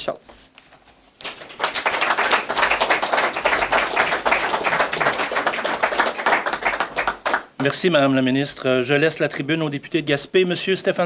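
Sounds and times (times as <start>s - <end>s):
audience applauding: 1.2s - 7.6s.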